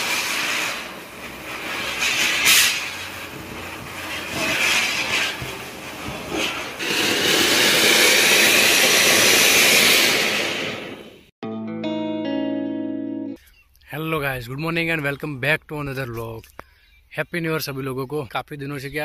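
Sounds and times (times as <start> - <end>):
fountain firework hissing: 0.0 - 11.3
spinner firework fizzing: 0.0 - 11.3.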